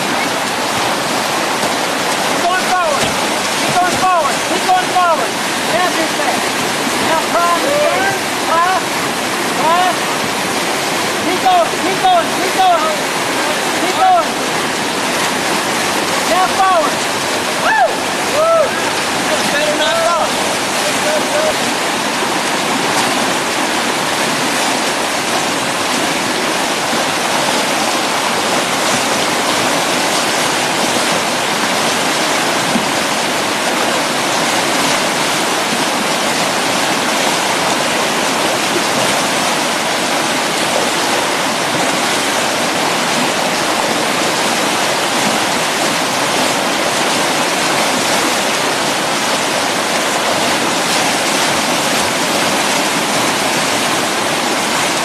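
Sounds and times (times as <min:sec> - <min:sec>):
whitewater rushing: 0:00.0 - 0:55.0.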